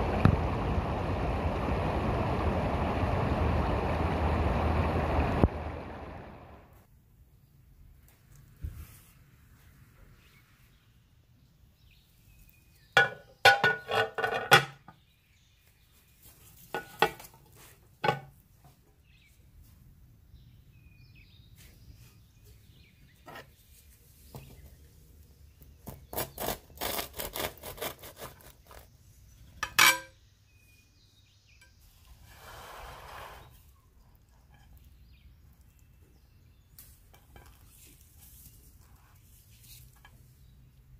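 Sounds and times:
skillet and plate clattering: 13.0 - 14.9
knife cutting crisp crust: 25.8 - 28.9.

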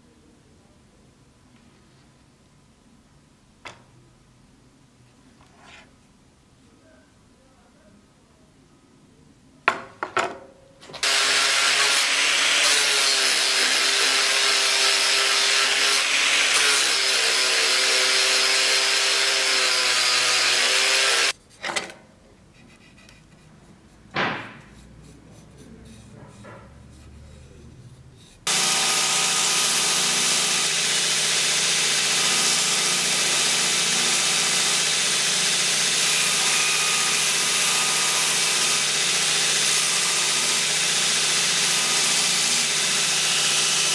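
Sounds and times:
power tool running on wood: 11.0 - 21.3, 28.5 - 43.9
belt grinder sanding wood: 11.0 - 21.4, 28.4 - 43.9
short scrape: 22.6 - 28.5.

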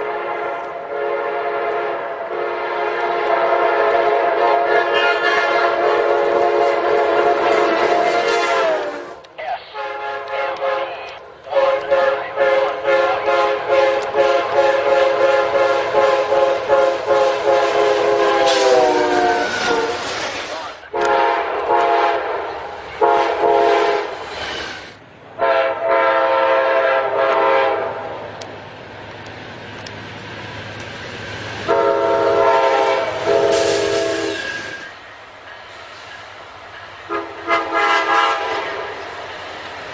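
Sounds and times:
locomotive air horn blasts: 0.0 - 20.0, 20.9 - 24.2, 25.4 - 28.1, 31.7 - 34.8, 37.1 - 39.0
low rumble of train: 0.0 - 39.9.

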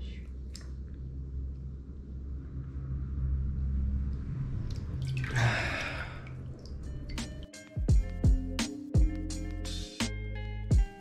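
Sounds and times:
low steady hum: 0.0 - 10.8
water splashing off a face: 4.7 - 7.4.

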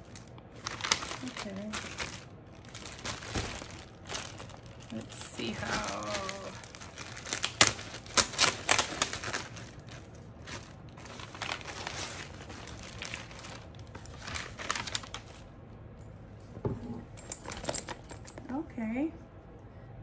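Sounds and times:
plastic bag crinkling: 0.0 - 15.5.

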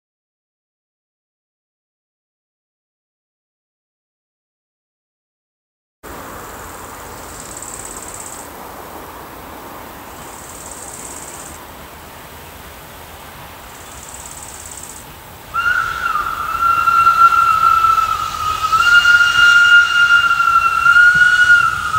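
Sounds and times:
insects buzzing: 6.1 - 21.9
steam whistle blast: 15.5 - 21.9.

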